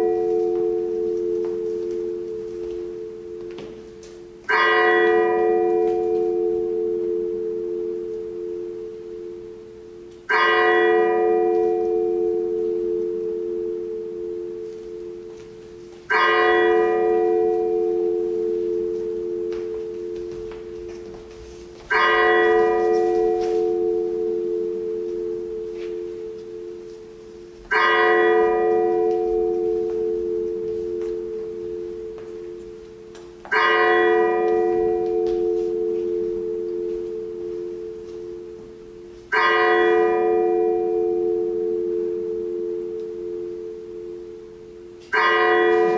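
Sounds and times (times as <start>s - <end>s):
bell tolling slowly: 0.0s - 45.9s.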